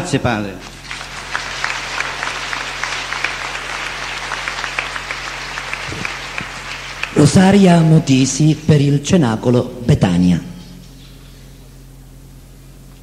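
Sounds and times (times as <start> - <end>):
crowd applauding: 0.7 - 8.3.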